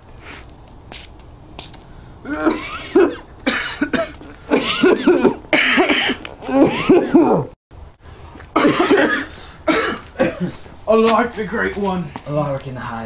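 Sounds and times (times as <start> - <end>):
people groaning: 2.2 - 3.2, 6.4 - 7.5
people coughing and hacking: 2.3 - 7.5, 8.6 - 10.7.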